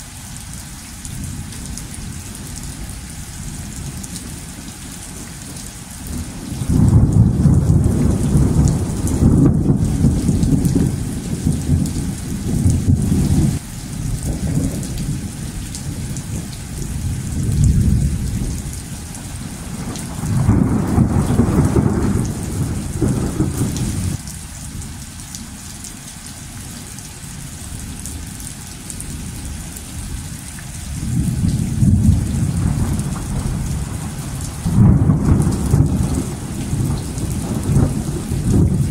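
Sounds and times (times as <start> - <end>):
steady rain: 0.0 - 38.9
thunder rolling: 6.6 - 13.6, 19.6 - 24.2, 31.0 - 38.9.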